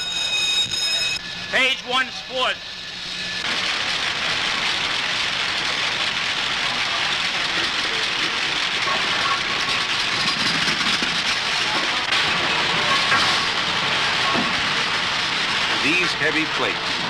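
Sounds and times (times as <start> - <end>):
printing press machinery din: 1.2 - 17.0.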